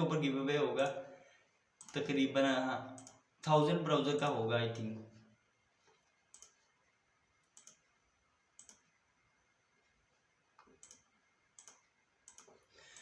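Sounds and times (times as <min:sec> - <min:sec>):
faint computer mouse clicks: 0:03.0 - 0:03.2, 0:06.3 - 0:06.6, 0:07.4 - 0:07.8, 0:08.6 - 0:08.9, 0:10.6 - 0:13.0.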